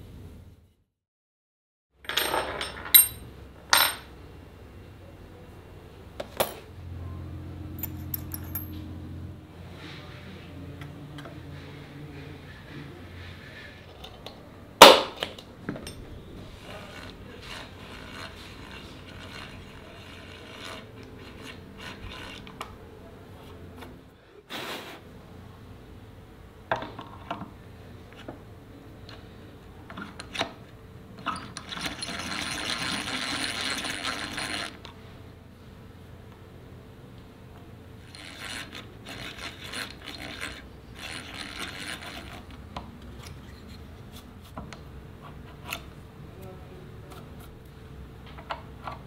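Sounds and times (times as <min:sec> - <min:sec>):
rasping scraping stroke: 0:16.4 - 0:22.5.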